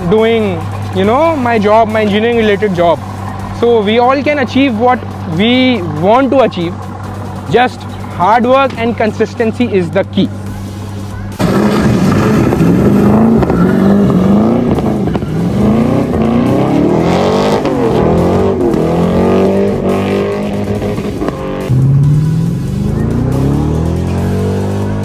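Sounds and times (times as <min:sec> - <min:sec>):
car engine revving hard: 0:11.4 - 0:25.0.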